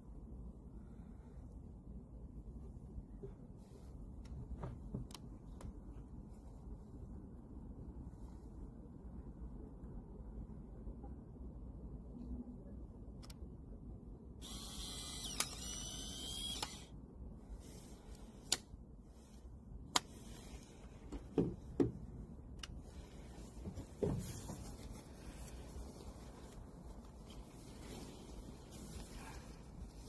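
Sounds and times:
camera click: 0:14.4 - 0:16.9
camera motor whirring: 0:14.4 - 0:16.9.

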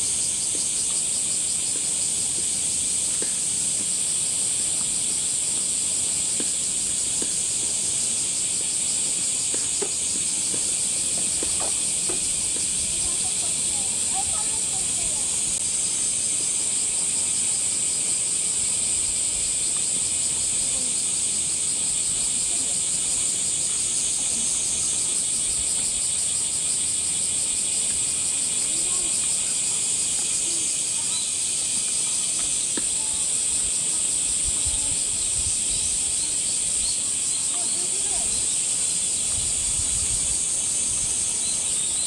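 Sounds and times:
cicadas buzzing: 0:00.0 - 0:42.0.

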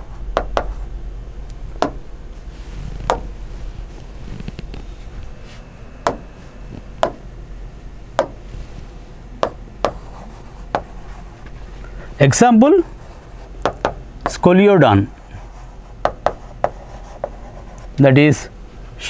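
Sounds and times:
low steady hum: 0:00.0 - 0:19.0
pen tapping on glass: 0:01.8 - 0:02.0, 0:09.4 - 0:10.0, 0:13.6 - 0:14.0.

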